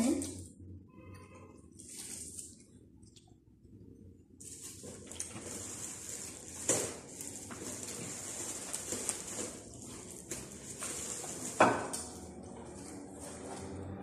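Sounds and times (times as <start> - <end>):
plastic packaging handled: 1.7 - 2.8, 4.4 - 13.9
knocks and rustles at a table: 6.5 - 12.2.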